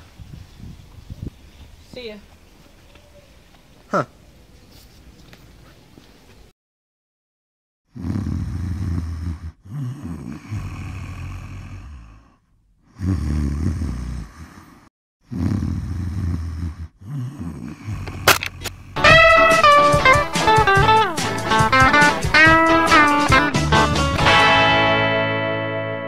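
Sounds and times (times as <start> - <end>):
person breathing heavily: 8.3 - 14.9, 15.6 - 18.2.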